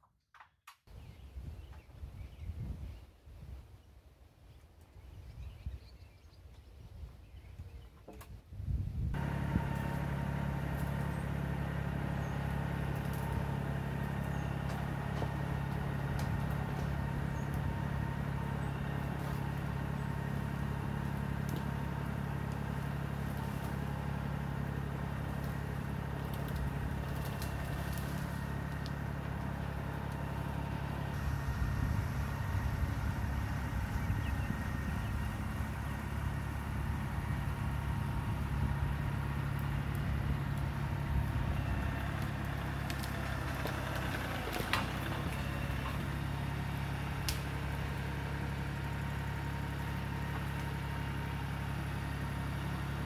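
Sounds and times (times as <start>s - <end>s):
tractor engine running: 9.0s - 53.0s.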